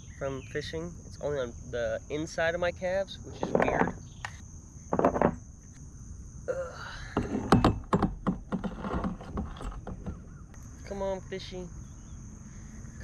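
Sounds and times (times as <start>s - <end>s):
steady high-pitched hum: 0.0s - 8.5s, 9.2s - 13.0s
irregular knocks and clicks: 3.3s - 5.8s, 7.2s - 10.6s.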